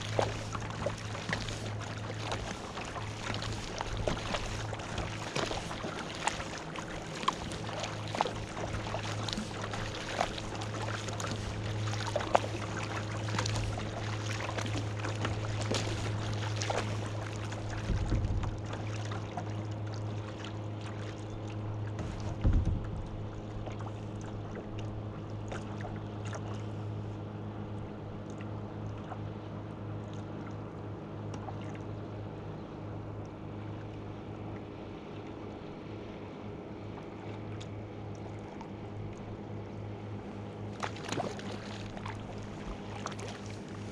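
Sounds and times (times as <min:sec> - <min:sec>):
paddle splashes and drips: 0:00.0 - 0:43.9
steady low hum: 0:00.0 - 0:43.9
water against hull: 0:00.0 - 0:43.9
dull knocks: 0:22.0 - 0:23.0.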